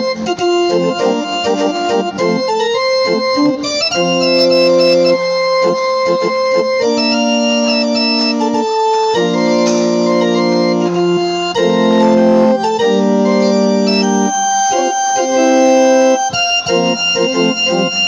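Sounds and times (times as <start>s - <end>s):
digital piano with organ voice: 0.0s - 18.0s.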